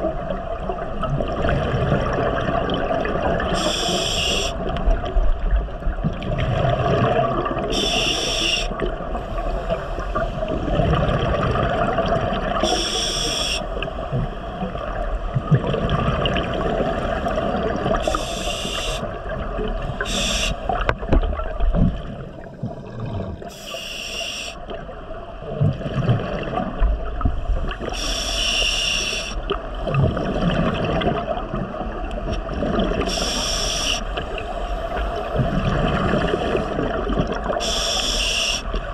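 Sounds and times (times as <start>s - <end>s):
exhaled bubbles gurgling: 0.0s - 38.9s
regulator inhalation hiss: 3.6s - 4.6s, 7.7s - 8.8s, 12.6s - 13.7s, 18.0s - 19.1s, 20.0s - 20.8s, 23.5s - 24.6s, 27.9s - 29.4s, 33.1s - 34.2s, 37.6s - 38.8s.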